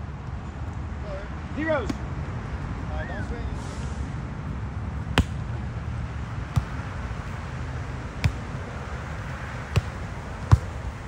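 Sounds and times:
volleyball hits: 0:05.1 - 0:05.4, 0:06.5 - 0:06.9, 0:08.1 - 0:08.6, 0:09.6 - 0:10.9.

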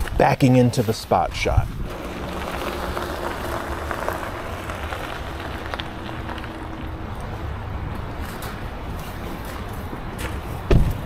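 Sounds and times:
low rumble: 0:01.8 - 0:09.2
tyres crunching on wet gravel: 0:01.8 - 0:09.6
stones popping: 0:01.9 - 0:07.7.

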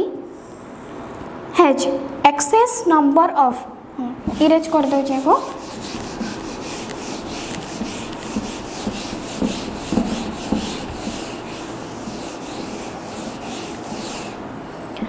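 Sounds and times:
eraser rubbing on whiteboard: 0:04.3 - 0:14.4.

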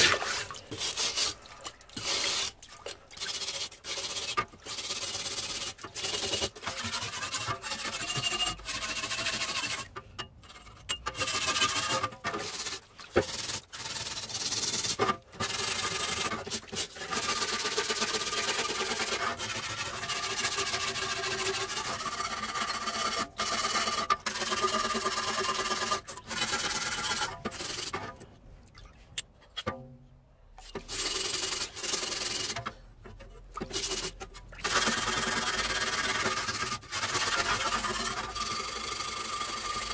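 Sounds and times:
water splashing: 0:00.0 - 0:03.8
wire brush scrubbing metal blade: 0:00.0 - 0:10.0, 0:33.6 - 0:39.9.

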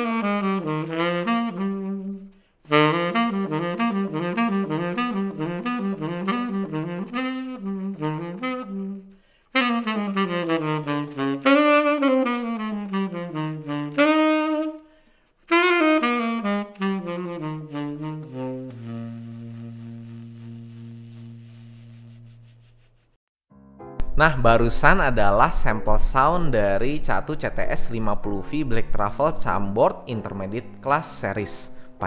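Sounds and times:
tenor saxophone solo: 0:00.0 - 0:22.6.

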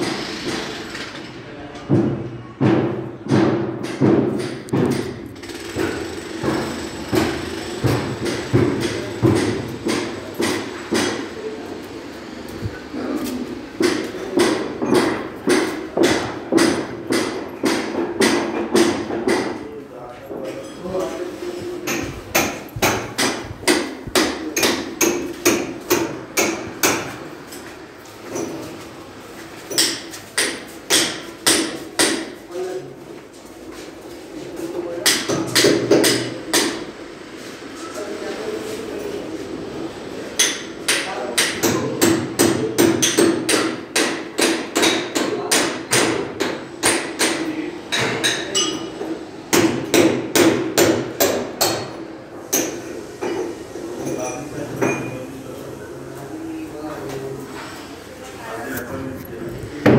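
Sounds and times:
hammer striking: 0:01.9 - 0:11.4, 0:13.8 - 0:19.6, 0:21.8 - 0:27.2, 0:29.7 - 0:32.4, 0:35.0 - 0:36.9, 0:40.4 - 0:53.4
hammer striking with ring: 0:40.4 - 0:48.9.

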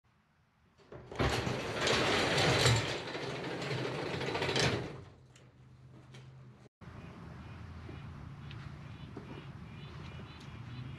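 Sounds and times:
garage door rollers rattling: 0:00.8 - 0:05.6
garage door clunk: 0:00.8 - 0:06.4.

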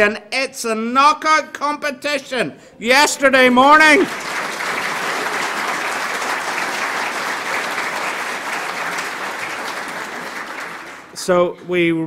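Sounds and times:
crowd applauding: 0:03.0 - 0:11.3.

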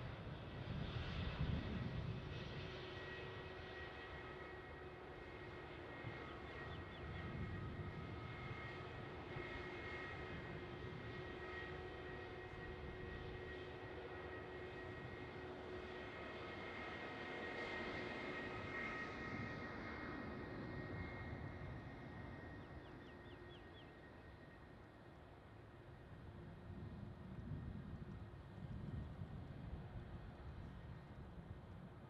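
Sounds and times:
jet engines idling with whine: 0:00.0 - 0:32.0.

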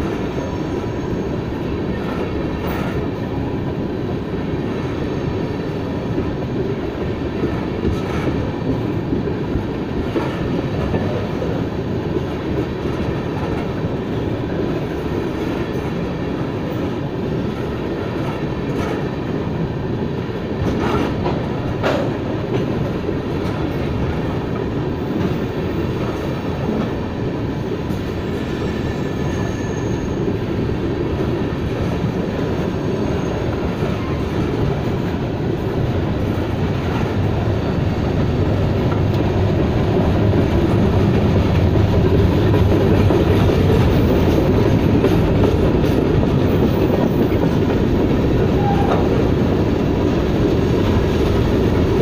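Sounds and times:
freight train wheels rumbling: 0:00.0 - 0:52.0
wheel squeal: 0:28.2 - 0:30.3.

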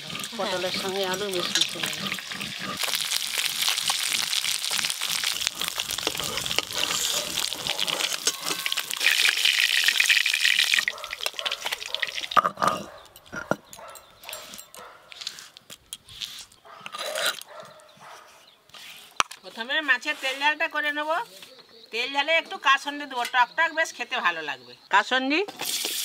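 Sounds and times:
fish frying in hot oil: 0:00.0 - 0:12.4, 0:25.6 - 0:26.0.

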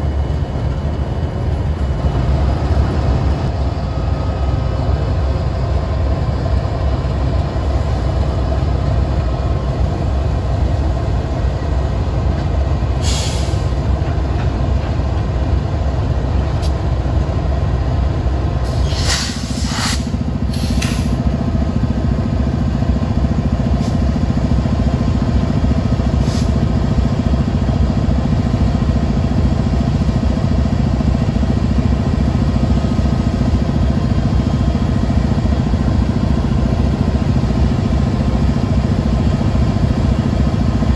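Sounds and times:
diesel locomotive rumble: 0:00.0 - 0:40.9
short hisses: 0:13.0 - 0:13.7, 0:18.7 - 0:21.2.

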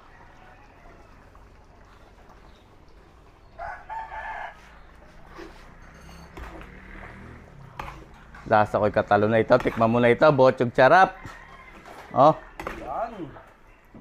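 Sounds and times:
rooster crowing: 0:00.0 - 0:01.4, 0:03.6 - 0:04.8, 0:11.0 - 0:12.8.

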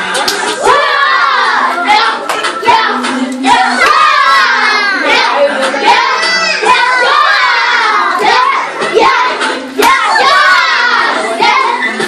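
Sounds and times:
hand claps: 0:00.1 - 0:00.6, 0:01.7 - 0:02.6
children shouting and singing: 0:00.5 - 0:12.0.

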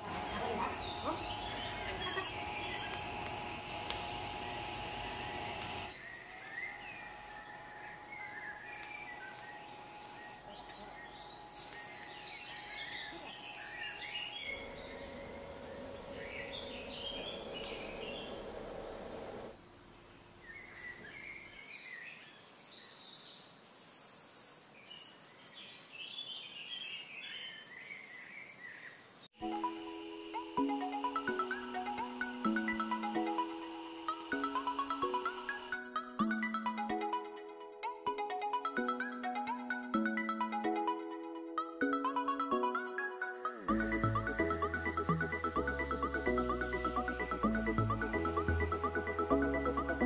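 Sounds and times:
welding arc hissing: 0:00.0 - 0:19.6, 0:29.7 - 0:35.8, 0:43.5 - 0:49.8
birds chirping: 0:00.0 - 0:29.3.

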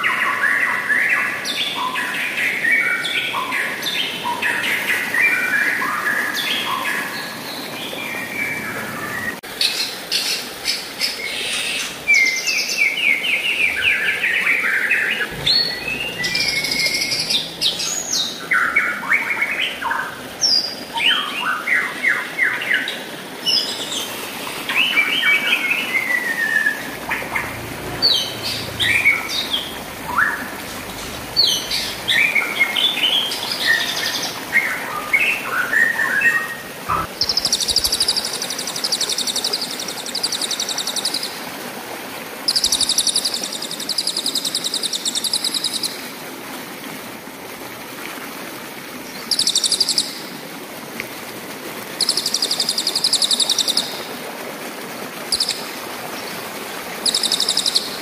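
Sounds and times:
stream rushing: 0:00.0 - 0:58.0
fast buzzing bird trill: 0:15.3 - 0:18.0
bird singing whistled phrases: 0:15.4 - 0:17.9.

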